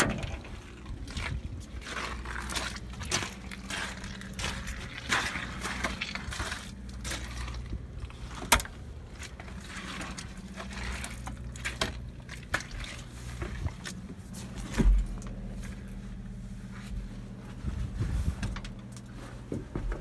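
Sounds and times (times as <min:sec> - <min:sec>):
steady low hum: 0:00.0 - 0:20.0
footsteps on metal: 0:17.6 - 0:20.0.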